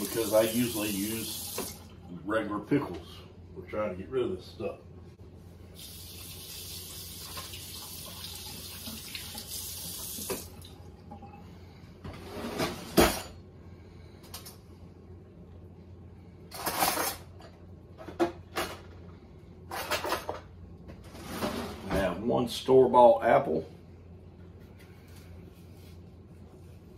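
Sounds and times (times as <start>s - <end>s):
faucet running: 0.0s - 2.1s, 5.8s - 11.2s
kitchen knocks and clatter: 16.6s - 18.9s.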